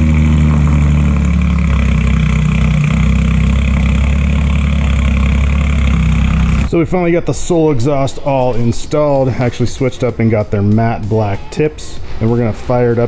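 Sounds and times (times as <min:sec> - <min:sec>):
car engine idling: 0:00.0 - 0:06.8.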